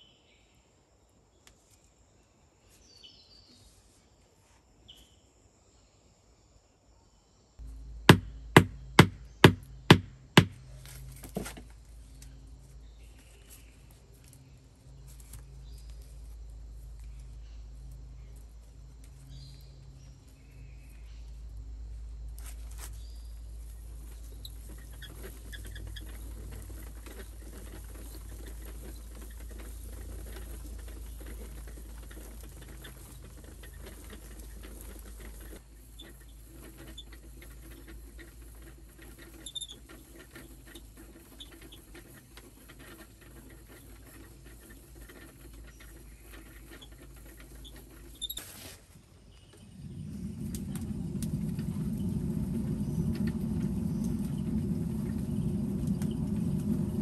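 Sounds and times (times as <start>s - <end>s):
low steady rumble: 7.6s - 48.2s, 49.1s - 57.0s
wicker wheel clicking and creaking: 7.6s - 57.0s
sharp knock: 8.1s - 10.6s.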